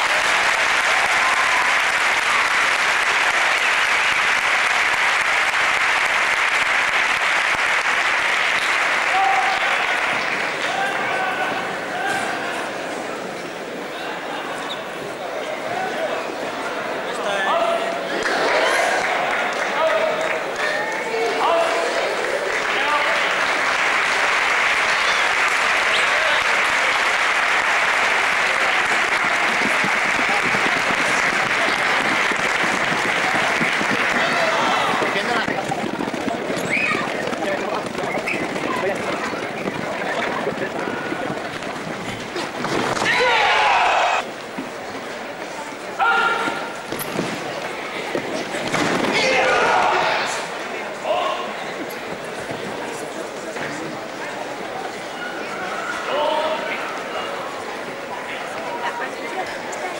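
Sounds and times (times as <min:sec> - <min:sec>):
crowd applauding: 0:00.0 - 0:12.1, 0:18.0 - 0:44.3.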